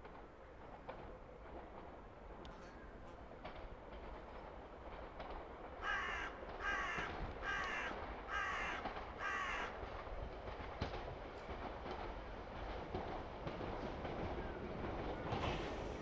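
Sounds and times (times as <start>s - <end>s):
crow cawing: 5.8s - 9.8s.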